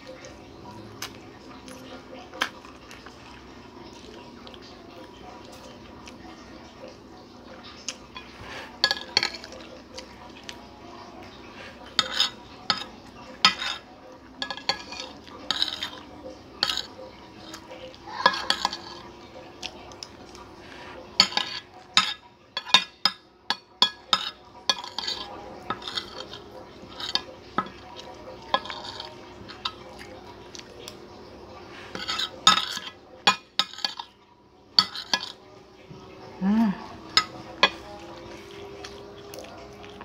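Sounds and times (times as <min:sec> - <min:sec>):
spoon and fork scraping a plate: 0:08.1 - 0:09.6, 0:11.6 - 0:17.6, 0:18.2 - 0:19.1, 0:20.7 - 0:30.0, 0:31.6 - 0:34.2, 0:34.8 - 0:35.4.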